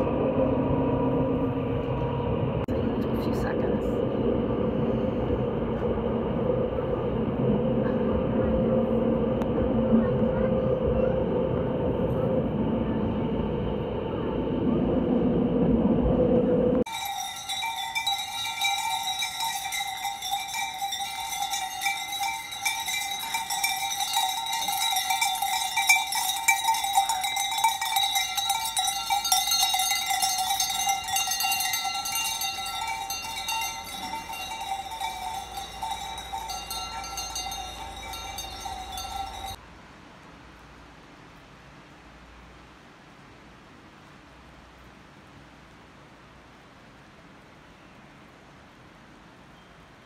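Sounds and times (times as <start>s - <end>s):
cowbells clanking: 16.9s - 39.6s
faint steady hiss: 39.5s - 50.0s.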